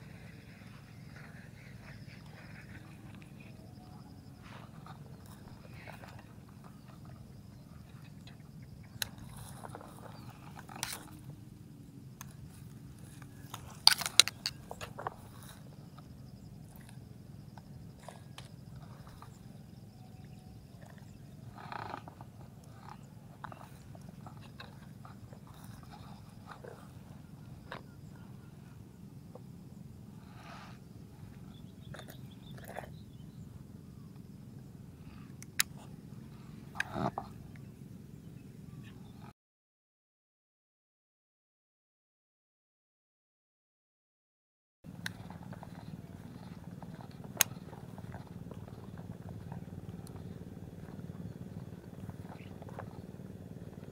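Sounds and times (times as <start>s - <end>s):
low steady hum: 0.0s - 39.3s, 44.9s - 53.9s
reel clicks: 12.2s - 15.6s
fishing rod handling rustle: 12.5s - 15.6s
stalks snapping: 13.1s - 14.9s.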